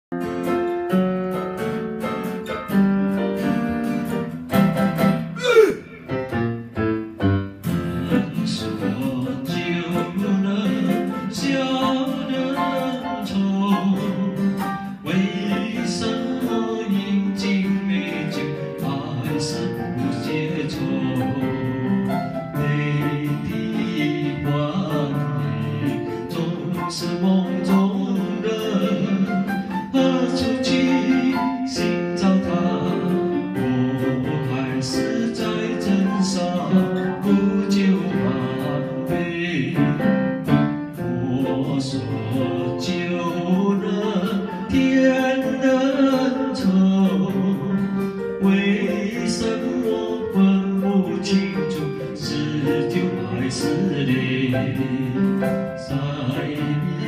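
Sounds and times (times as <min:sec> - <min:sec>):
acoustic guitar: 0:00.1 - 0:57.0
digital piano: 0:00.1 - 0:57.0
man singing into microphone: 0:05.4 - 0:06.4, 0:07.7 - 0:57.0.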